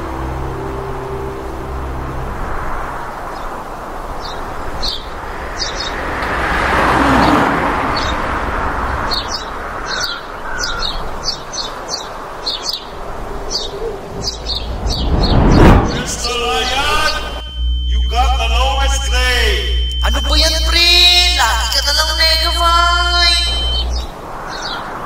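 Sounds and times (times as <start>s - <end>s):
steady rushing background: 0.0s - 6.6s, 8.0s - 25.0s
small birds chirping: 4.2s - 6.1s, 7.9s - 15.4s, 16.2s - 25.0s.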